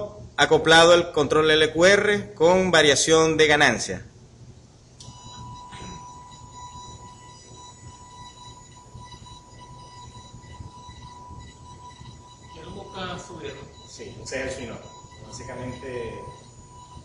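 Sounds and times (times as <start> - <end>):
electric motor whining: 5.0 - 17.0.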